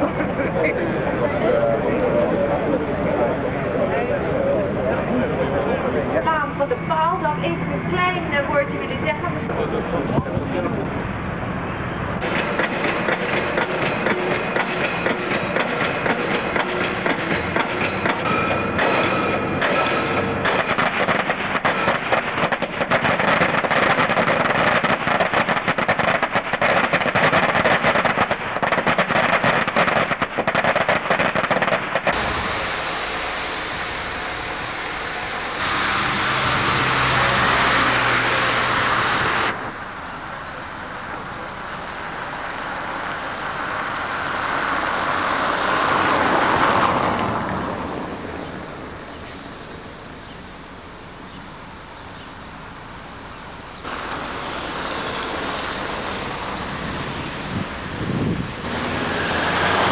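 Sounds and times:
machine noise: 0.0s - 59.9s
steady rushing noise: 0.0s - 59.9s
pile driver hammering: 12.2s - 32.3s.

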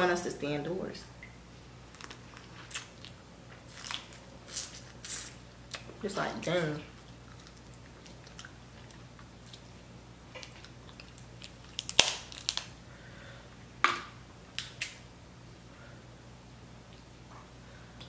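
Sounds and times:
crab shells cracking: 10.4s - 12.8s.

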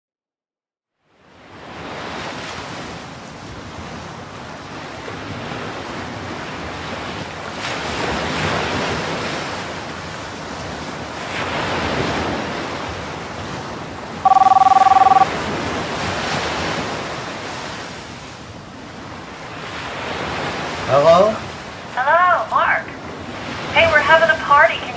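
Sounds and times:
ocean surf washing on beach: 1.2s - 24.9s
telephone ringing: 14.2s - 15.3s.

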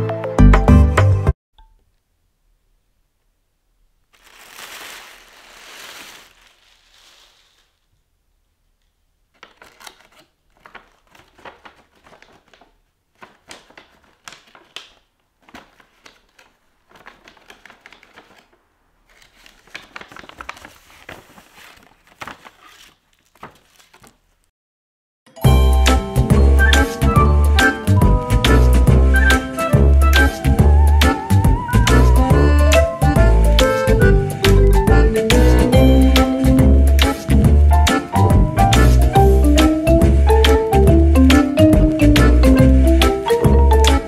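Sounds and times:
tissue paper crinkling: 4.0s - 7.9s, 9.3s - 24.5s.

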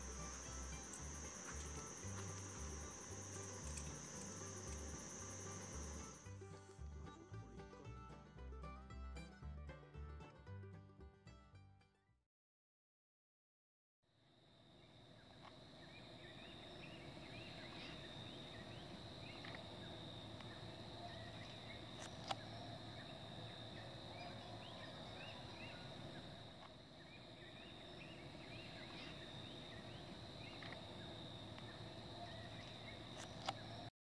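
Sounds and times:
steady high drone: 0.0s - 6.2s.

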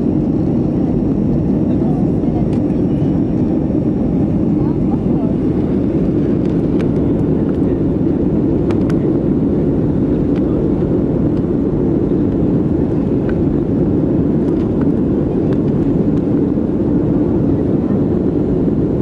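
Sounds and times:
airplane cabin drone: 0.0s - 19.0s.

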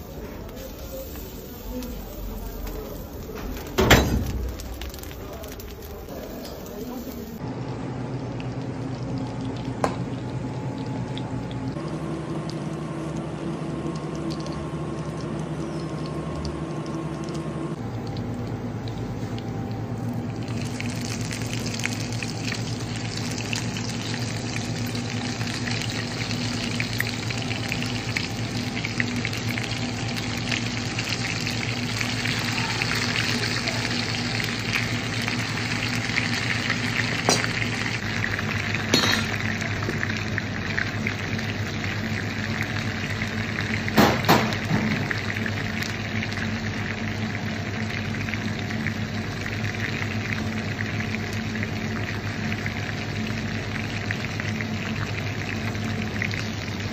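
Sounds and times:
low hum: 0.2s - 43.8s
butter sizzling in a pan: 0.5s - 7.4s, 20.4s - 56.9s.

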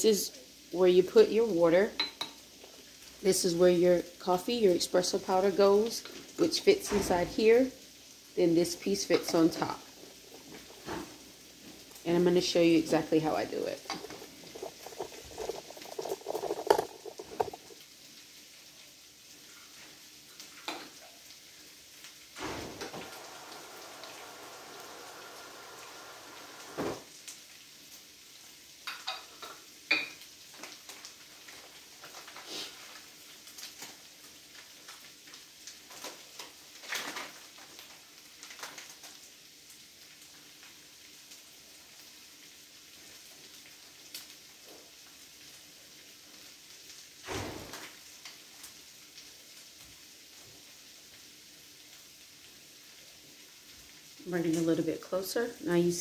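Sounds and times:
potatoes sizzling in skillet: 0.0s - 56.0s
kitchenware clinking and knocking: 2.0s - 2.4s, 9.0s - 9.8s, 13.8s - 17.7s.

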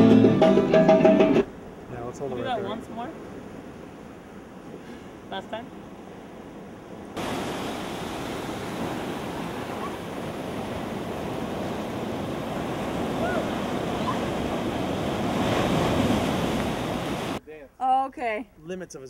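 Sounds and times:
ocean surf breaking: 1.2s - 17.4s
water splashing: 7.2s - 17.4s.

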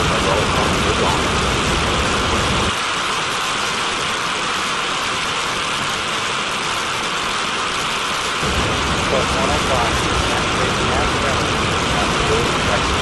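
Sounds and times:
turbojet rushing hiss: 0.0s - 13.0s
deep low rumble: 8.4s - 13.0s.

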